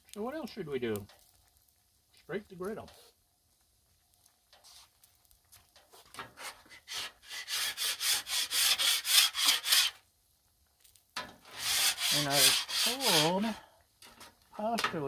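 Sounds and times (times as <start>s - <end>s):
scraper scraping steel griddle: 5.8s - 10.0s, 11.2s - 14.3s.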